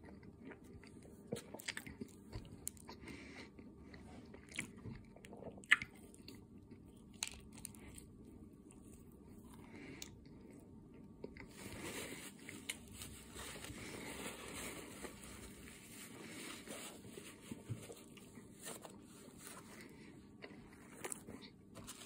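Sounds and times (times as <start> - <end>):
chewing with mouth clicks: 0.0 - 11.5
paper towel rustling: 11.5 - 20.0.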